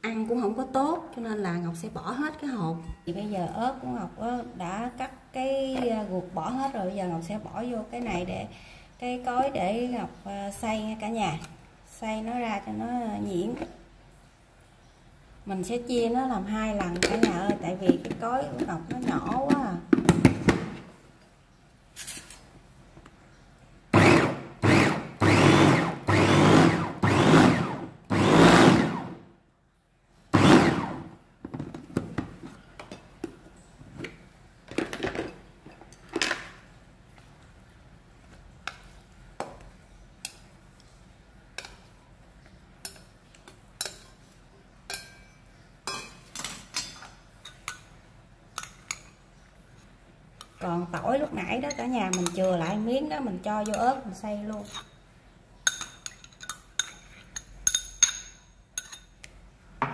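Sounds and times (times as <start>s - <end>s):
electric mini chopper blending: 24.0s - 29.2s, 30.4s - 31.1s.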